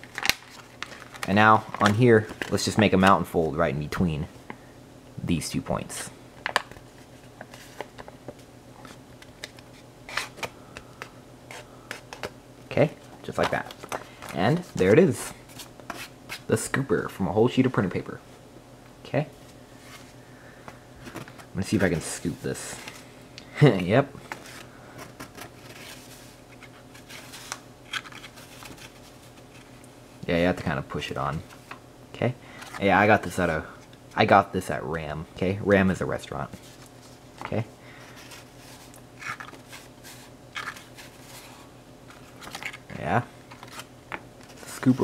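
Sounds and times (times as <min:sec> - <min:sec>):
paper rustling and scraping: 0:24.2 - 0:29.7, 0:36.5 - 0:45.0
paper being folded and creased: 0:38.1 - 0:42.8.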